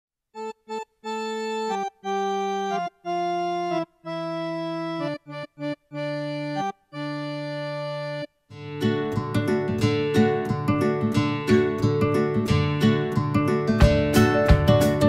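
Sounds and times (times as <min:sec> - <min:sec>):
organ-like keyboard jingle: 0:00.4 - 0:08.3.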